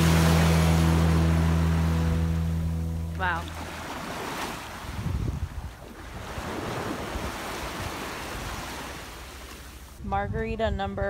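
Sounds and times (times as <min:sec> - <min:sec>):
waves washing over sand: 0:00.0 - 0:10.0
wind buffeting microphone: 0:04.1 - 0:09.2, 0:09.8 - 0:11.0.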